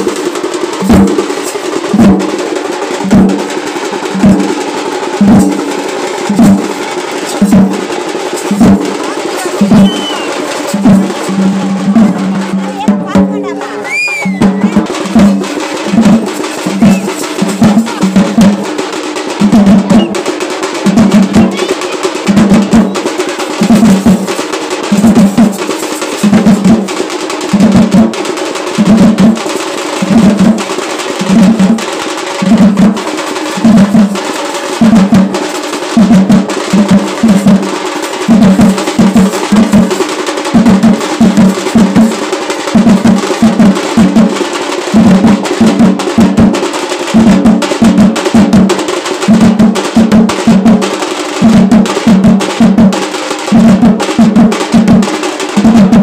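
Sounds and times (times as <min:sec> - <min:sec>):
heavy low drum strokes: 0:00.0 - 0:28.2.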